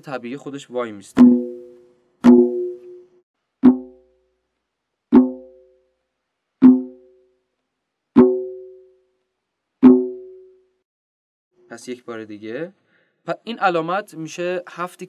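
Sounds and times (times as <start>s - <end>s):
tombak drum strokes: 1.2s - 4.0s, 5.1s - 5.6s, 6.6s - 7.1s, 8.2s - 8.6s, 9.8s - 10.4s.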